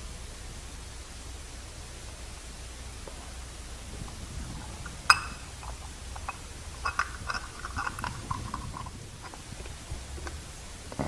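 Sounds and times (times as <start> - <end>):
small metal parts clinking: 5.1 - 10.4.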